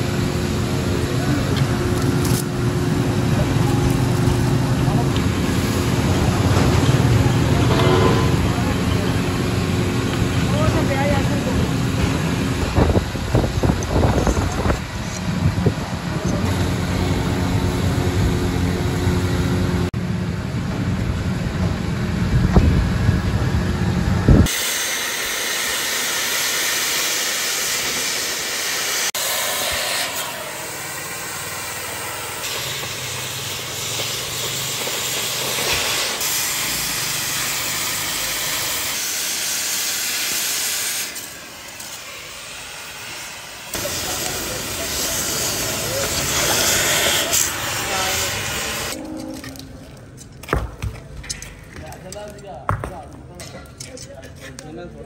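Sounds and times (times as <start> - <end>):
cutting torch hissing: 0.0 - 19.9, 24.4 - 49.0
low rumbling hum: 0.0 - 24.5, 48.4 - 51.9.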